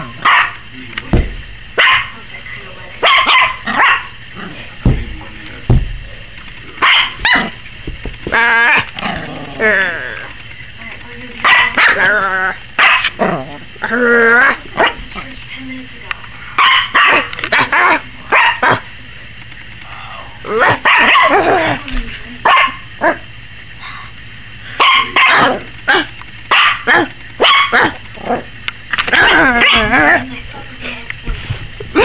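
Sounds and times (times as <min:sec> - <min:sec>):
puppy barking: 0:00.0 - 0:00.6, 0:01.8 - 0:02.2, 0:03.0 - 0:04.2, 0:06.8 - 0:07.6, 0:11.4 - 0:12.2, 0:12.8 - 0:13.2, 0:14.3 - 0:15.1, 0:16.6 - 0:18.9, 0:20.5 - 0:21.8, 0:22.4 - 0:23.3, 0:24.7 - 0:28.5, 0:29.1 - 0:30.3.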